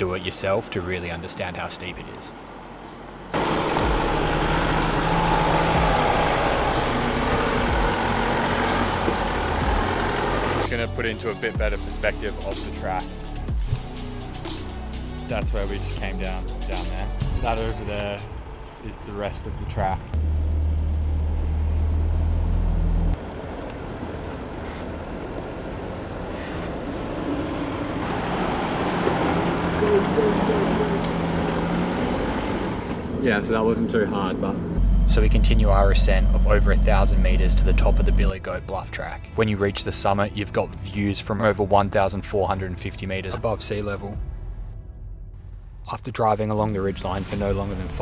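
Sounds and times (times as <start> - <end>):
vehicle engine running under load: 2.3 - 11.0, 18.2 - 33.2.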